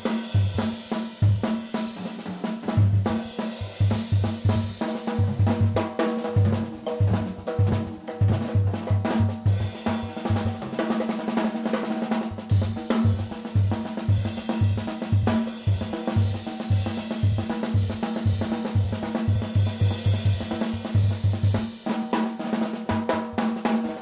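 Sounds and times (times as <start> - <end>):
jazz drum kit solo: 0.0 - 24.0.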